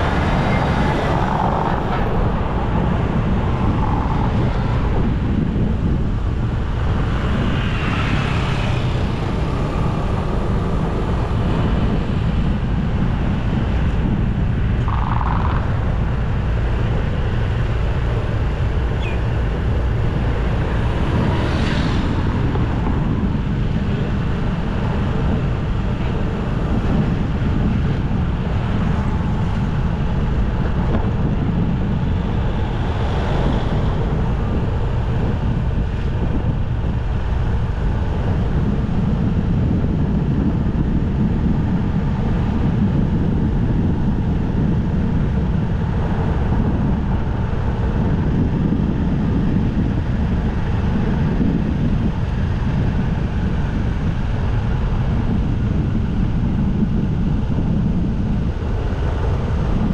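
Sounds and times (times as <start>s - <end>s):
road and traffic noise: 0.0s - 59.9s
wind rushing over microphone: 0.0s - 59.9s.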